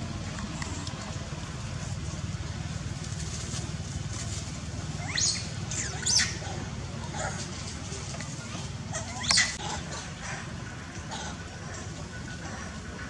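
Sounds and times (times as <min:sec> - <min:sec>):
steady low rumble: 0:00.0 - 0:13.0
monkey high-pitched squeals: 0:05.0 - 0:06.6, 0:08.9 - 0:09.6.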